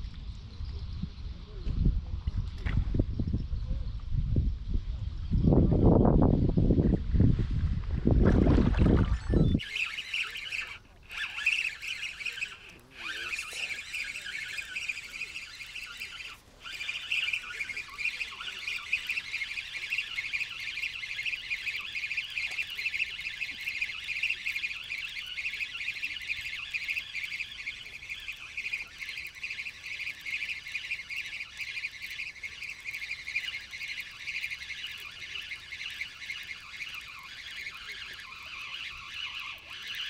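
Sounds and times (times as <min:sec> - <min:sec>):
high-pitched animal chirping chorus: 0:09.1 - 0:40.0.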